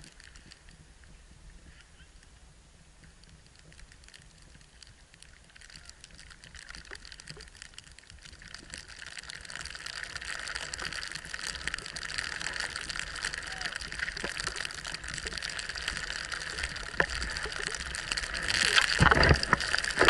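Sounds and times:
wind on microphone: 0.0s - 5.0s
sliding on snow: 3.2s - 20.0s.

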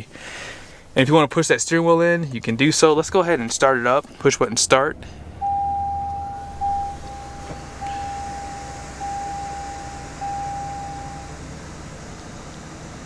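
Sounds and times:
truck engine starting and rumbling: 2.0s - 13.0s
electronic warning chime: 5.4s - 11.4s.

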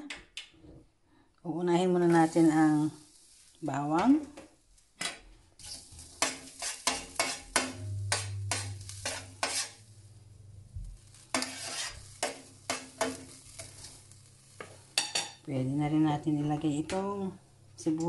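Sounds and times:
utensil scraping a skillet: 5.2s - 9.9s, 10.9s - 15.5s.

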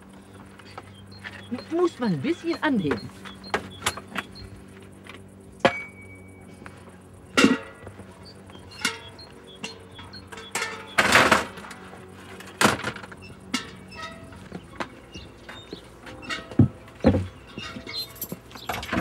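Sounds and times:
low steady drone: 0.0s - 18.3s
garden tools knocking and clinking: 0.7s - 4.5s, 5.6s - 6.1s, 7.3s - 19.0s
garden gate swinging open: 7.3s - 19.0s.

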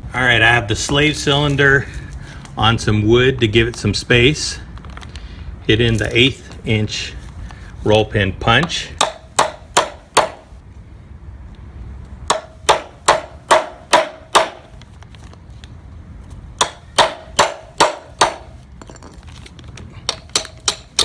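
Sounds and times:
hammer tapping metal punch: 8.6s - 10.5s, 20.1s - 21.0s.

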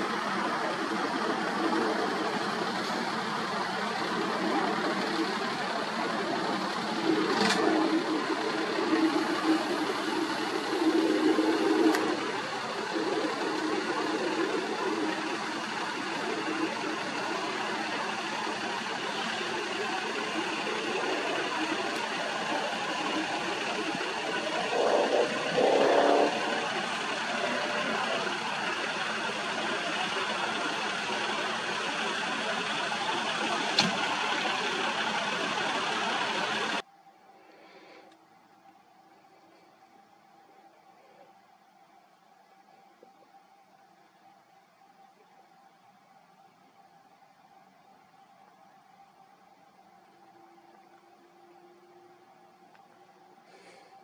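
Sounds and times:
helicopter drone: 0.0s - 36.8s.

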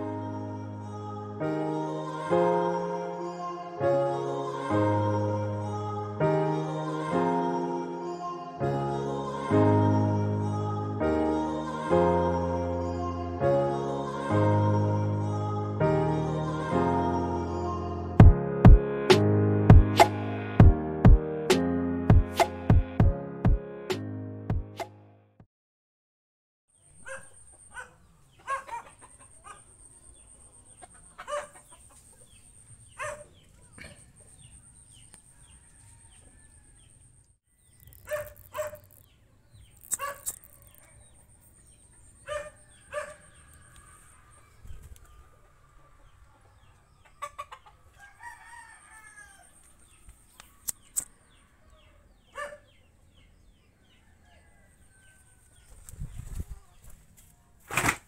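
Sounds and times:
chickens clucking: 27.5s - 29.6s, 30.6s - 32.4s, 42.3s - 48.2s
rooster crowing: 35.3s - 37.1s, 47.8s - 49.7s, 53.8s - 55.6s
sharp clicks: 39.8s - 40.9s.

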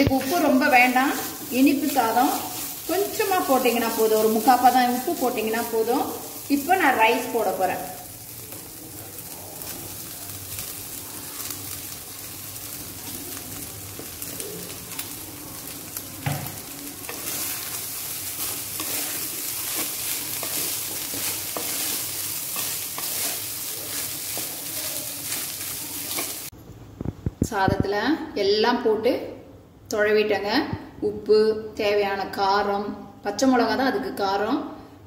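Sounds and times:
sizzling hiss: 0.0s - 26.6s
wooden spoon scraping metal pan: 18.4s - 26.4s.

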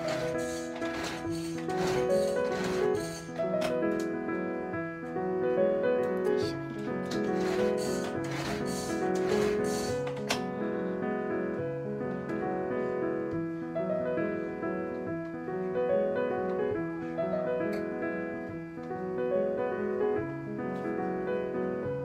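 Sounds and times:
piano music: 0.0s - 22.0s.

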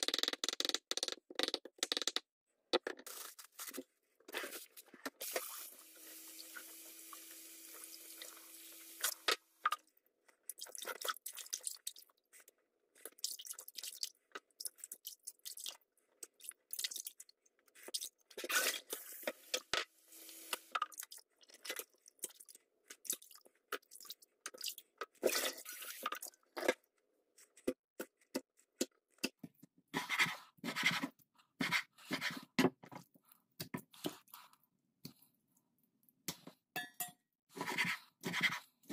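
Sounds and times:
tap water running: 5.2s - 9.4s.

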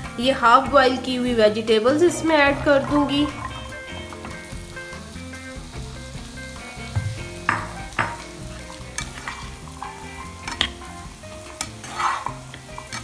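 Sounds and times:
soft frying sizzle: 0.0s - 13.0s
spatula scraping a pan: 7.2s - 13.0s.

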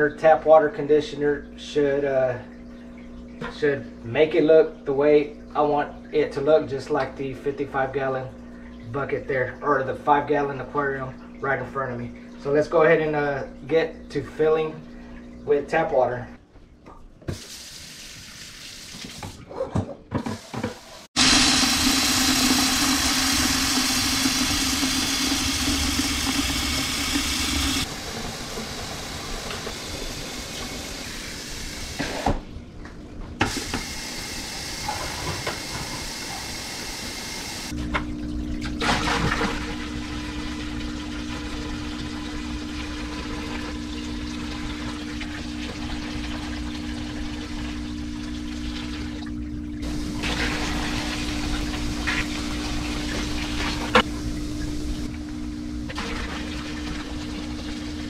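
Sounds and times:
faucet running into bucket: 20.6s - 32.0s, 38.6s - 55.1s.

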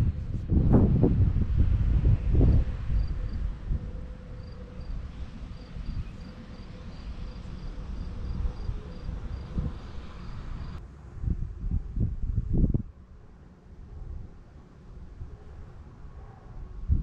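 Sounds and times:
crickets chirping: 3.0s - 10.8s.

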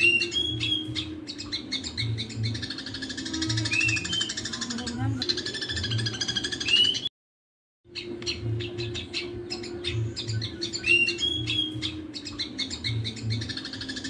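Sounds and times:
bulbul whistled notes: 0.0s - 4.7s
sparrows chattering: 0.0s - 7.1s, 7.9s - 14.0s.

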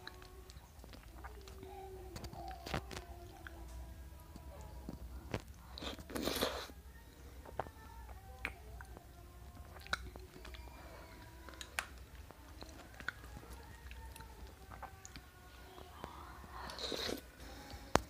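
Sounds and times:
person chewing ice cream: 0.0s - 3.8s, 4.5s - 6.8s, 7.4s - 18.0s.

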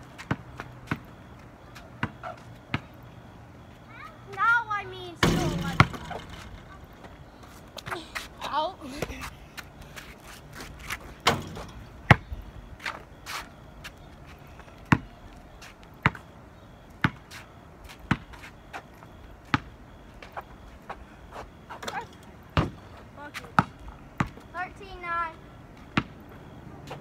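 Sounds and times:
basketball bouncing on asphalt: 0.0s - 3.8s, 5.2s - 27.0s.

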